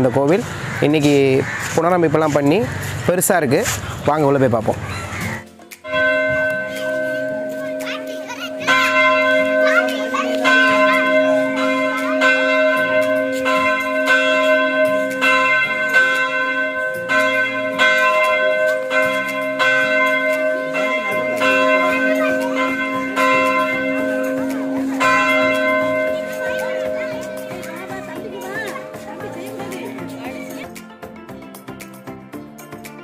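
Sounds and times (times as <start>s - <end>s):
church bell ringing: 5.9s - 30.7s.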